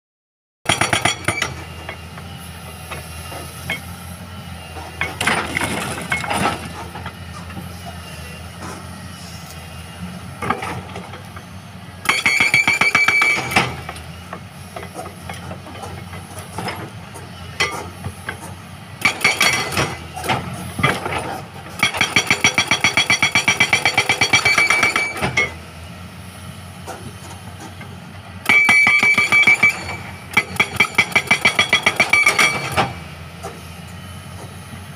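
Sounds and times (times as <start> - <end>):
hydraulic breaker hammering rock: 0.7 - 2.3, 4.7 - 7.7, 12.0 - 25.6, 26.8 - 33.6
diesel engine running: 0.7 - 34.9.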